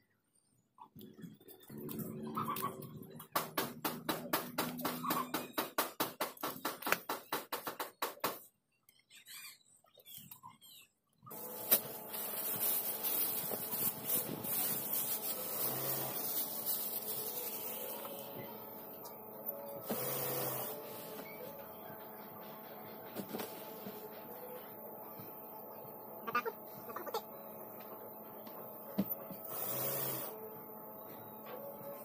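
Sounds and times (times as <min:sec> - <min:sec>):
fabric rustling and rubbing: 0:11.3 - 0:17.9
plastic bag rustling: 0:11.3 - 0:18.4.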